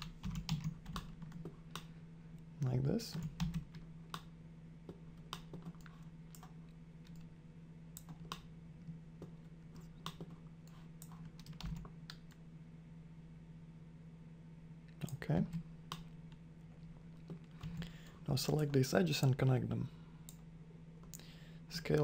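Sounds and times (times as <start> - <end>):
steady low hum: 0.0 - 22.0
keyboard and mouse clicks: 4.9 - 7.3, 9.2 - 10.4.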